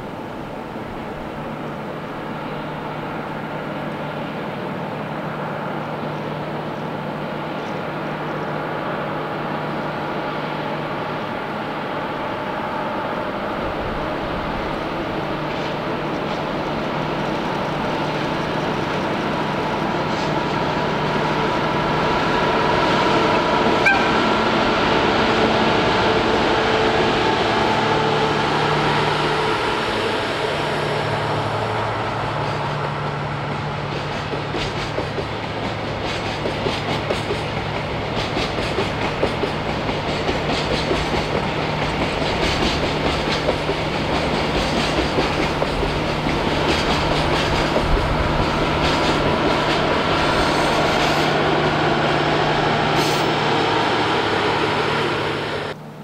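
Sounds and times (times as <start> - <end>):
train wheels clickety-clack: 15.4 - 20.6, 32.3 - 51.4
diesel engine drone: 49.2 - 56.0.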